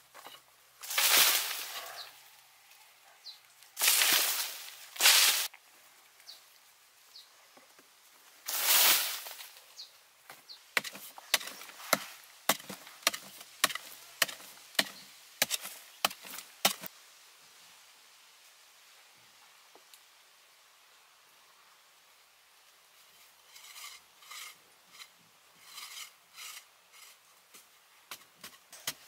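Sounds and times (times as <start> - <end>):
digging tool striking packed earth: 0.2 - 1.9, 3.8 - 5.5, 10.8 - 16.9.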